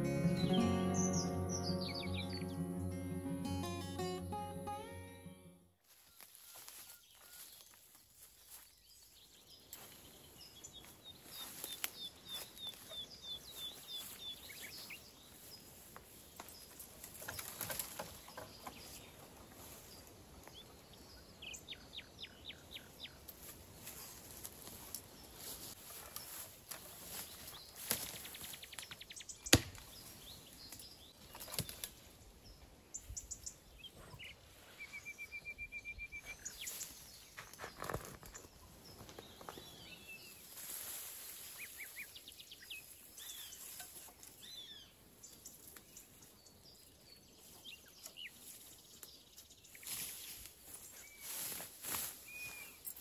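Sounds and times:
birds chirping: 0.0 - 5.4.

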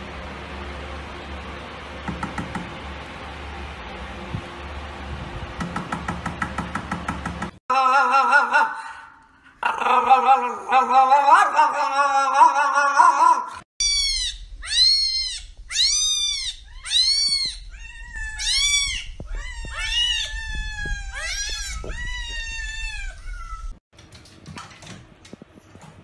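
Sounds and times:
cat meowing: 13.8 - 23.8.

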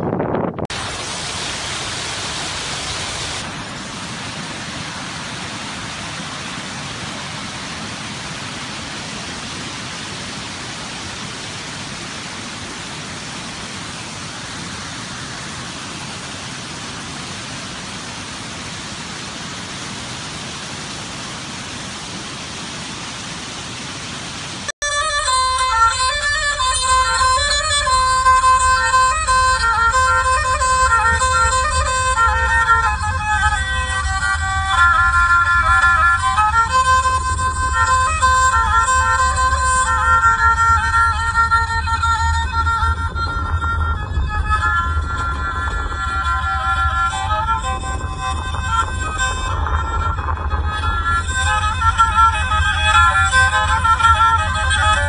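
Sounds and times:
waterfall rushing: 0.7 - 55.0
music: 24.8 - 55.0.

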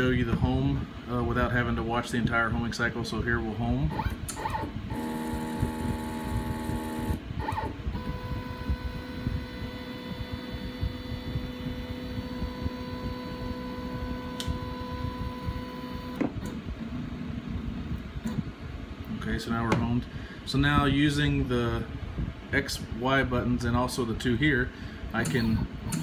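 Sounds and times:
stepper motors whining: 4.0 - 16.5.

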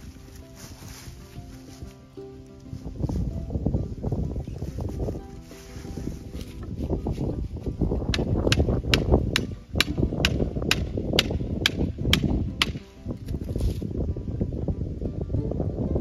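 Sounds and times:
hammer strikes: 8.1 - 12.9.

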